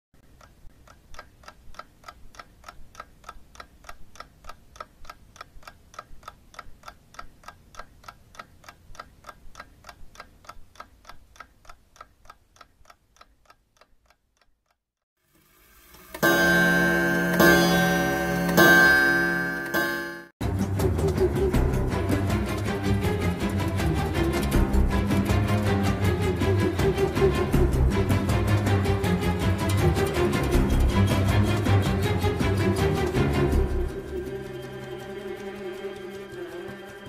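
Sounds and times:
clock ticking: 0.2s - 14.8s, 15.9s - 37.0s
music with loud held chords: 16.3s - 37.0s.

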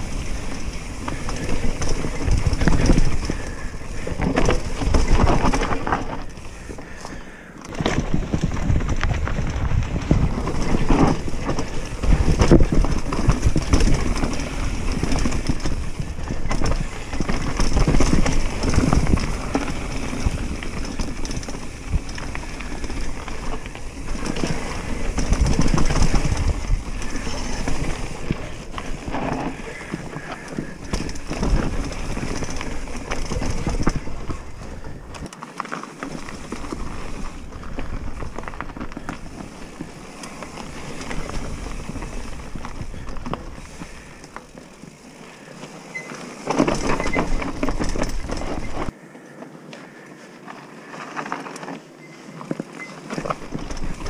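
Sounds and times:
bike rattling: 0.0s - 54.0s
bike tyres crunching over stones: 0.0s - 54.0s
wind rumble on microphone: 7.8s - 30.2s.

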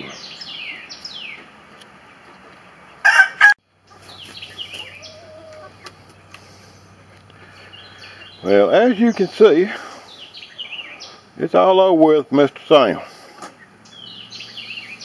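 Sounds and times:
chicken squawk: 3.0s - 6.2s
faint small birds chirping: 3.7s - 11.6s.

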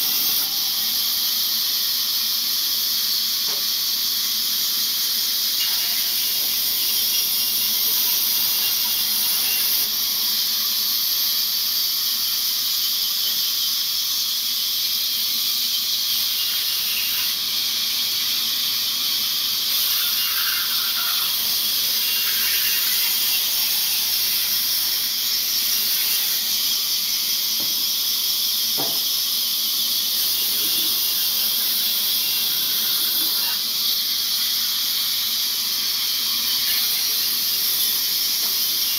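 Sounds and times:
band saw cutting logs: 4.4s - 10.8s, 15.0s - 38.9s.

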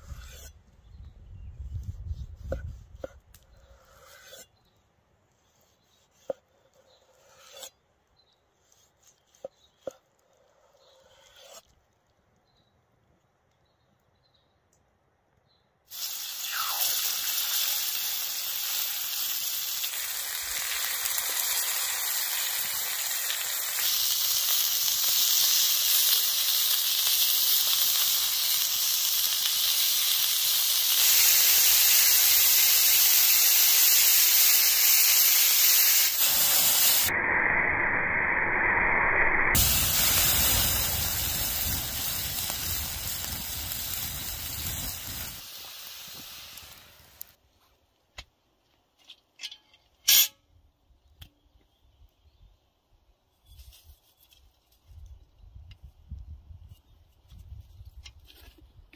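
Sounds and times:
meat sizzling on a hot pan: 15.9s - 47.2s.

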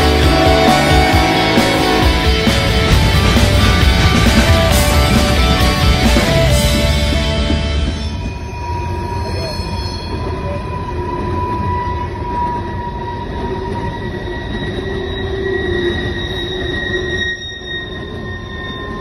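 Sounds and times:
train wheels squealing on rail: 0.0s - 6.4s, 7.6s - 19.0s
train rumble: 0.0s - 19.0s.

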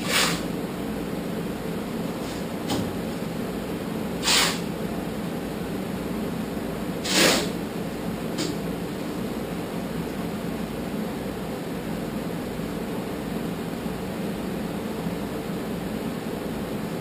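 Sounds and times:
compressed air hissing: 0.0s - 0.5s, 4.2s - 4.7s, 7.0s - 7.6s
steady low hum: 0.0s - 17.0s.

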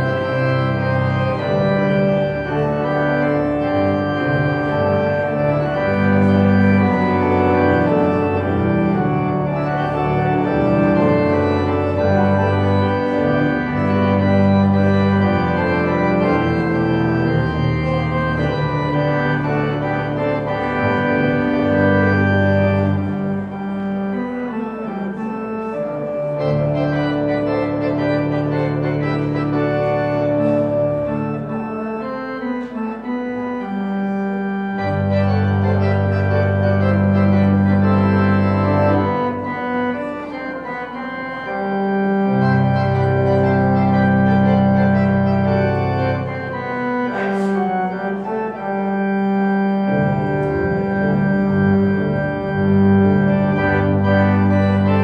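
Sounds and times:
church organ chords: 0.0s - 55.0s.

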